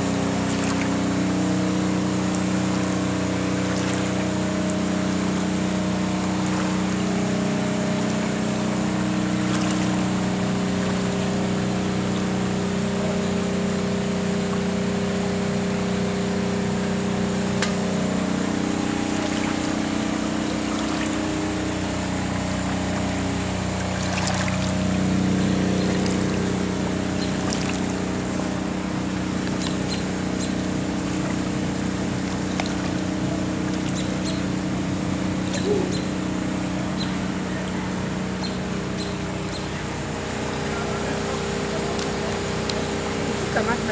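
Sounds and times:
water pumps humming: 0.0s - 43.9s
water trickling and pouring: 22.5s - 25.0s.

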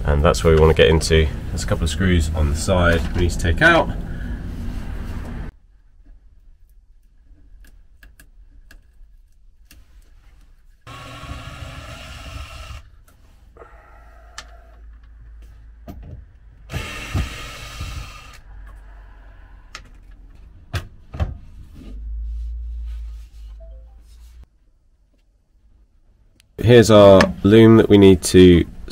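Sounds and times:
cordless drill running: 10.9s - 12.9s, 16.7s - 18.4s.

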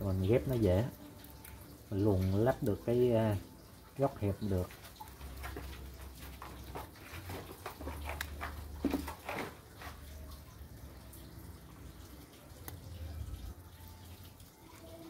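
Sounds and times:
plastic film rustling and clicking: 4.8s - 10.3s.

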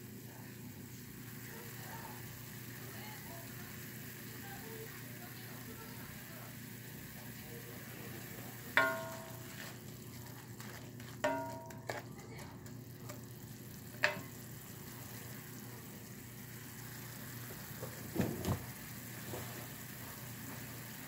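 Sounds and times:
sauce sizzling in a skillet: 0.0s - 21.0s
wooden spatula scraping a pan: 8.8s - 9.8s, 10.6s - 12.1s.

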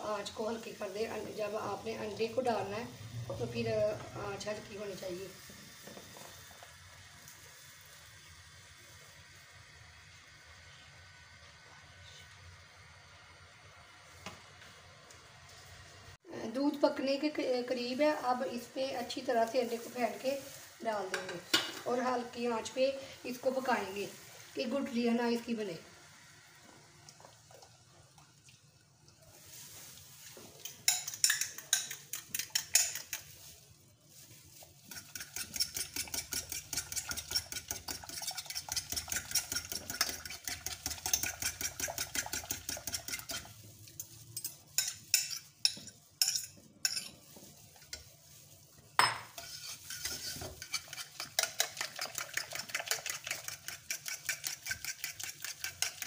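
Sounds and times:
spoon stirring in metal saucepan: 29.4s - 56.0s.

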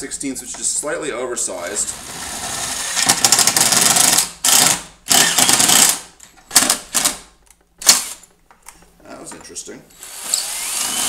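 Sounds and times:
power drill boring plastic: 1.9s - 6.0s, 10.0s - 11.0s.

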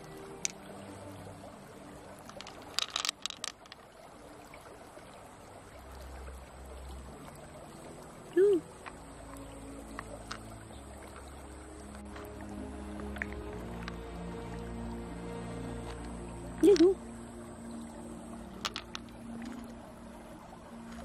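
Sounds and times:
faint background music: 0.0s - 21.0s
pearls clicking together: 0.3s - 0.8s, 2.2s - 3.9s, 9.9s - 10.6s, 15.8s - 17.0s, 18.5s - 19.6s.

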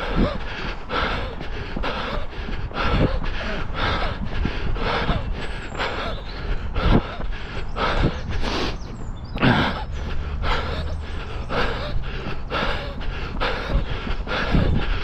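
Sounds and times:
runner breathing hard: 0.0s - 15.0s.

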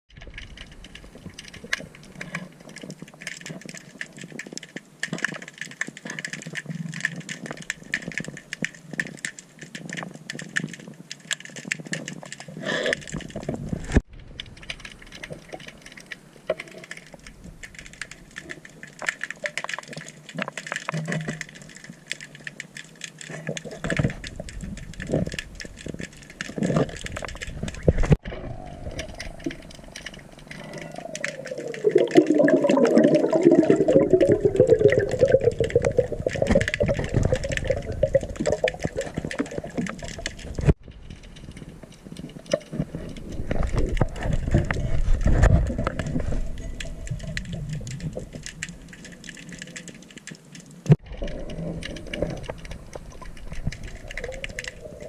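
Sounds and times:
fine underwater clicking and crackling: 0.1s - 55.0s
diver breathing bubbles: 28.2s - 40.7s.

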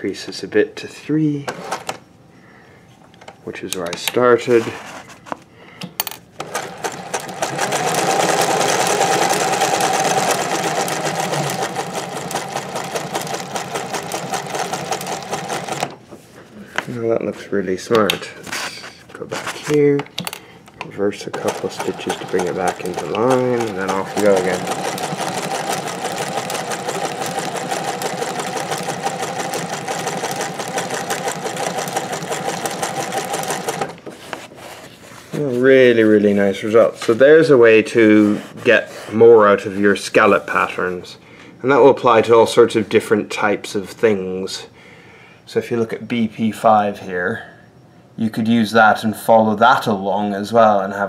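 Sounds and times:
sewing machine needle clattering: 6.4s - 16.0s, 21.2s - 34.0s.

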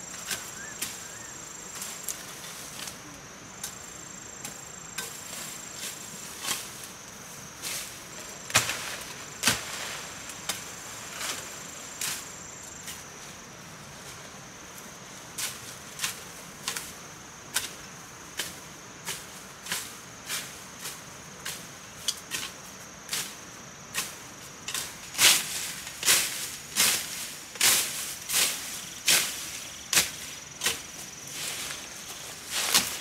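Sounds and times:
high insect drone: 0.0s - 33.0s
machete chopping brush: 8.5s - 10.7s, 22.2s - 33.0s.

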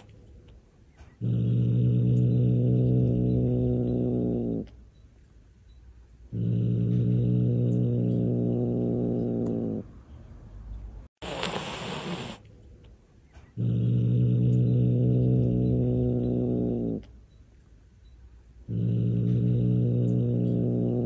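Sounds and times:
cat growling: 1.2s - 4.7s, 6.3s - 9.9s, 13.6s - 17.1s, 18.7s - 21.0s
cat hissing: 11.2s - 12.5s.

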